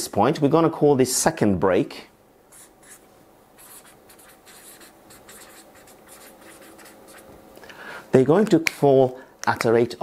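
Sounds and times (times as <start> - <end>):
marker squeaking on paper: 2.5 - 3.0, 3.6 - 7.3.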